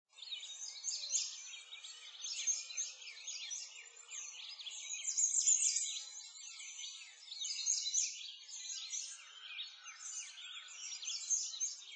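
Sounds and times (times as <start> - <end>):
small birds chirping: 0.1 - 11.9.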